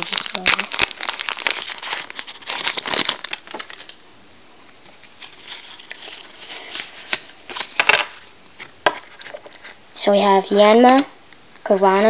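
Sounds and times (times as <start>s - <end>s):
foil wrapper crinkling: 0.0s - 4.0s, 4.9s - 9.8s
cards rustling and clicking: 5.1s - 9.8s.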